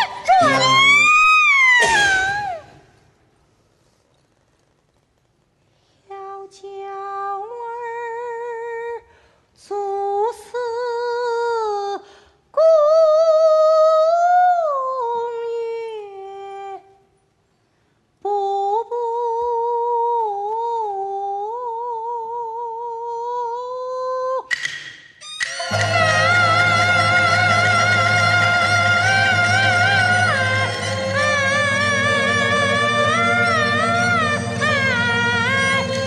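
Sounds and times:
woman singing opera unaccompanied: 0.0s - 2.8s, 6.1s - 9.0s, 9.6s - 17.0s, 18.2s - 24.5s, 25.7s - 36.0s
instrumental ensemble: 24.5s - 36.0s.

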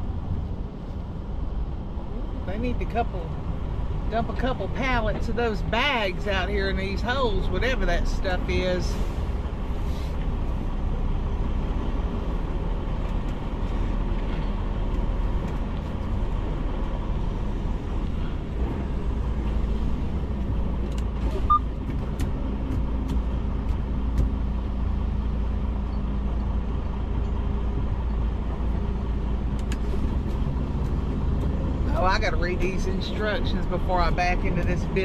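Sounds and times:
diesel truck engine rumble: 0.0s - 35.0s.

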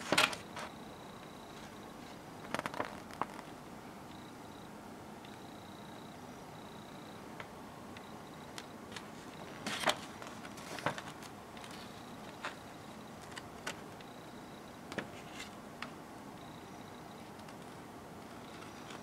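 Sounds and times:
paper pages rustling: 8.9s - 12.6s.

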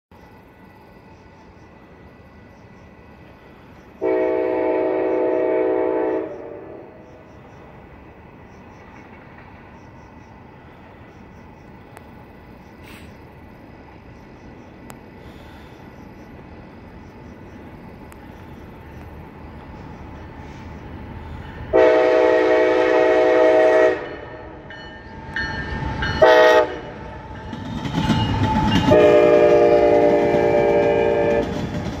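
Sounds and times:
train rumble and wheel clatter: 0.1s - 32.0s
locomotive air horn: 4.0s - 7.0s, 21.7s - 24.6s, 26.2s - 27.0s, 28.8s - 31.6s.

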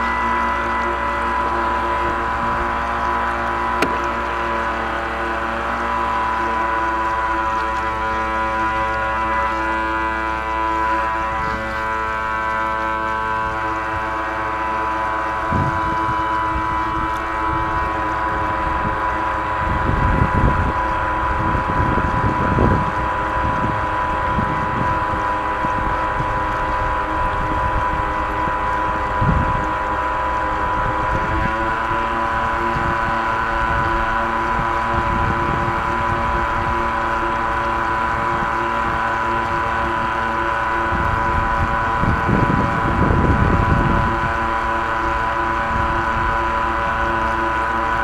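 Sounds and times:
toy jet boat whine: 0.0s - 48.0s
hull knocking on waves: 3.6s - 4.8s.

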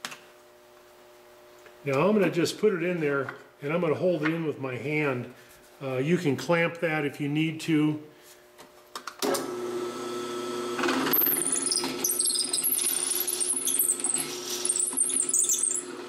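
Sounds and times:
trimmer scraping whine: 9.6s - 16.0s
drill press humming: 10.7s - 16.0s.

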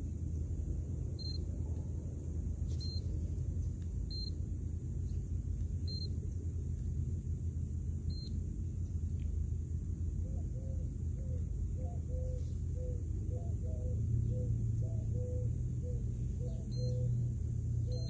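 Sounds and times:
short high-pitched beeps: 2.8s - 3.1s, 4.1s - 4.4s, 16.7s - 17.0s.

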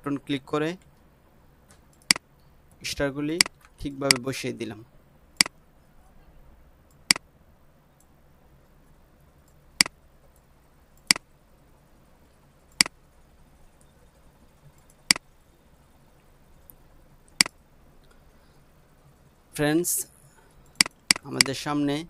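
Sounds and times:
faint room hum: 0.0s - 22.0s
computer mouse clicking: 1.7s - 2.8s, 12.7s - 13.0s, 16.6s - 18.2s, 20.6s - 21.6s.

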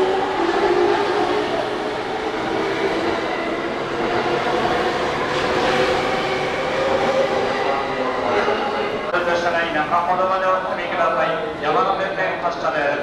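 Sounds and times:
train wheels on rails: 0.0s - 9.1s.

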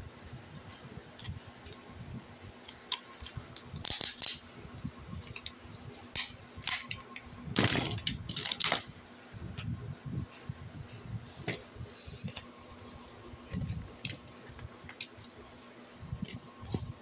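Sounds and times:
plastic toy clicks and rattles: 7.6s - 8.8s.

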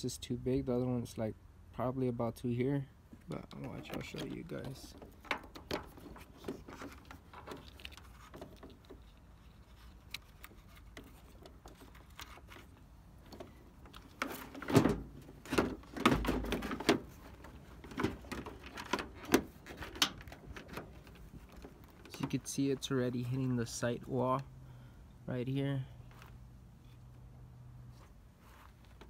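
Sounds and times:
small clicks and rubbing: 3.1s - 23.8s, 26.0s - 27.3s, 27.9s - 29.0s
plastic knocks and rattles: 3.4s - 9.1s, 13.3s - 22.4s.

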